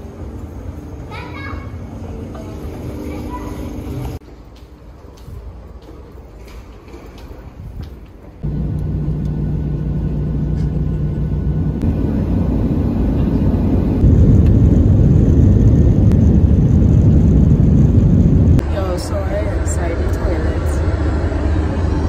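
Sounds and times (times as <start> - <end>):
jet engines rumbling in cabin: 8.4 - 22.0.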